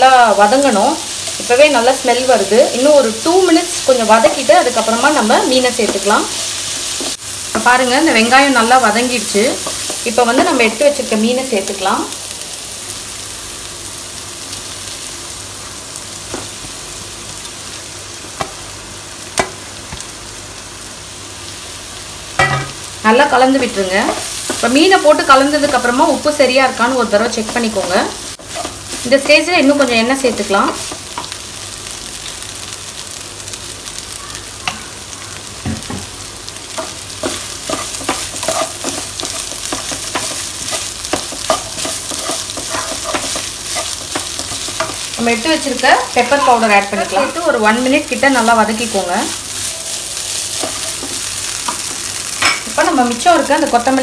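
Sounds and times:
onions sizzling in oil: 0:00.0 - 0:54.0
spatula scraping a pan: 0:36.8 - 0:45.1.

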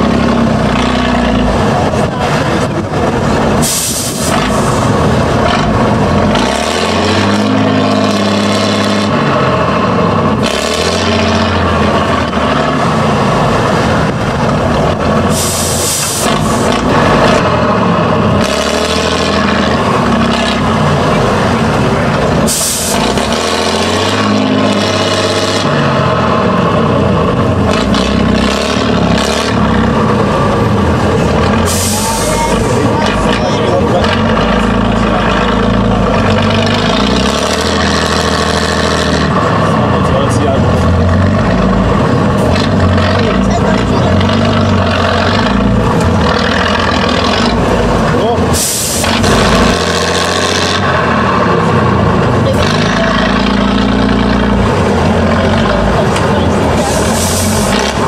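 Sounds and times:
truck diesel engine revving: 0:00.0 - 0:58.0
air brake hiss: 0:03.6 - 0:04.3, 0:15.3 - 0:16.2, 0:48.6 - 0:49.1, 0:56.9 - 0:57.6.

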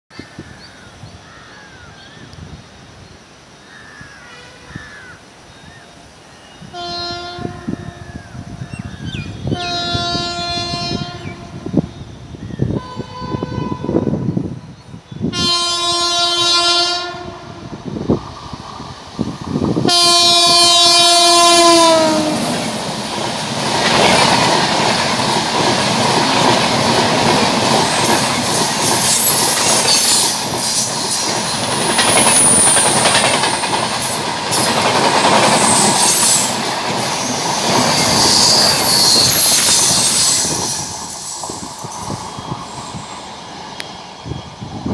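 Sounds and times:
locomotive horn blasts: 0:06.7 - 0:07.9, 0:09.4 - 0:11.7, 0:12.8 - 0:14.3, 0:15.3 - 0:17.8, 0:19.8 - 0:22.6
train wheels clattering over rail joints: 0:21.7 - 0:42.3.

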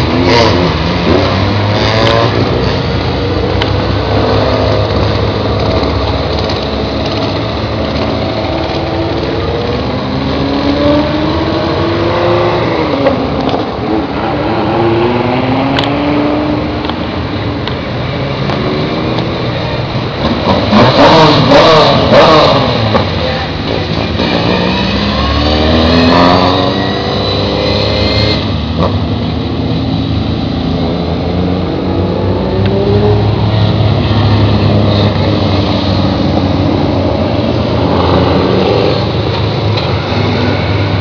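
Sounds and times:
rally car engine revving: 0:00.0 - 0:41.0.

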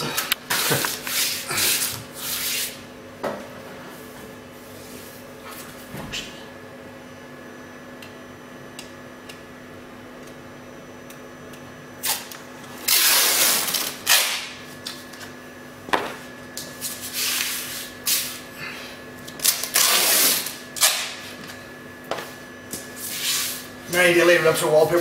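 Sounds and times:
tape pulled off a roll: 0:12.0 - 0:15.1, 0:19.3 - 0:21.2.

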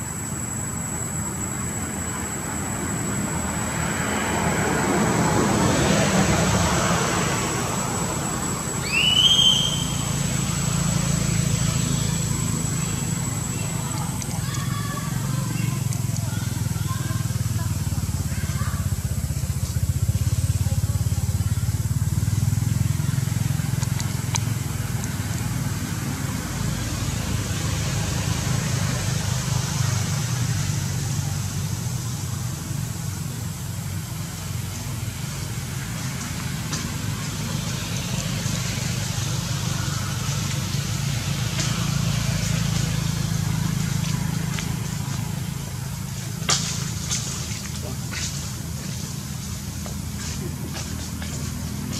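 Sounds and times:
low outdoor rumble: 0:00.0 - 0:51.9
faint clicks: 0:13.8 - 0:14.9.

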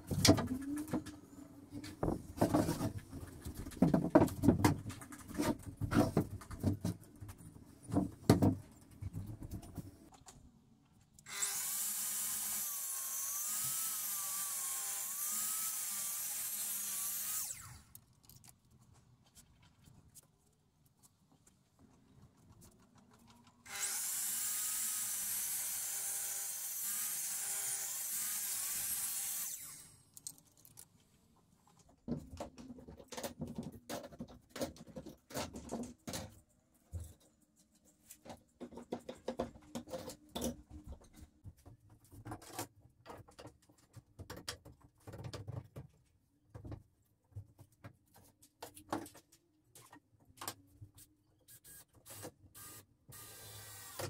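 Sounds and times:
wood and tools clattering: 0:00.0 - 0:10.4, 0:31.7 - 0:50.7
miter saw cutting wood: 0:11.3 - 0:17.9, 0:23.7 - 0:30.0.

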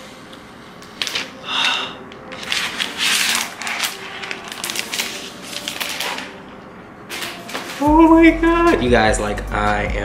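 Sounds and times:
plastic wrapping crinkling: 0:02.2 - 0:07.9.

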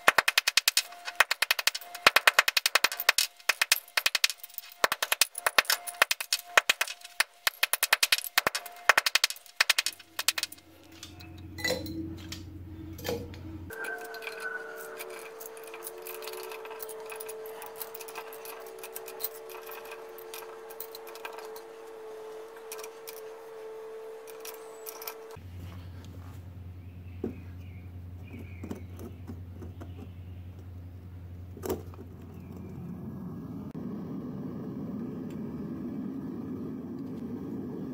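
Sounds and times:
metal pieces clinking into crucible: 0:00.0 - 0:25.4
steady hum: 0:00.0 - 0:37.9.

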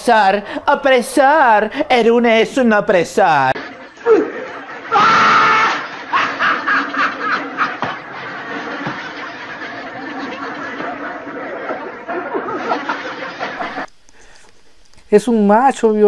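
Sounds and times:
man laughing hard: 0:04.1 - 0:07.9.

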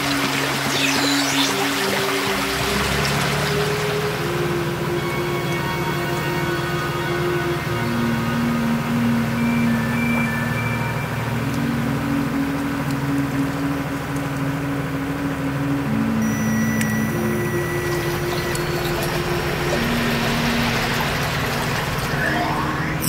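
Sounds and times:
electronic drone notes: 0:00.0 - 0:23.0
rising whistling glides: 0:00.0 - 0:23.0
dense rumble: 0:17.0 - 0:23.0.

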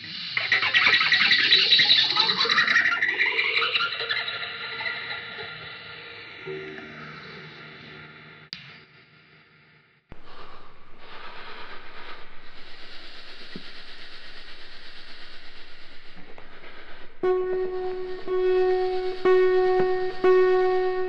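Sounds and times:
music passage: 0:11.0 - 0:21.0.

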